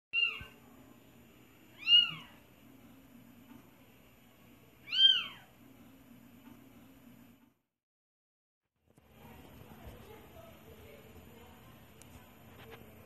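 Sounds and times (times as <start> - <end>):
cat meowing: 0.2 - 0.6, 1.8 - 2.4, 4.8 - 5.5.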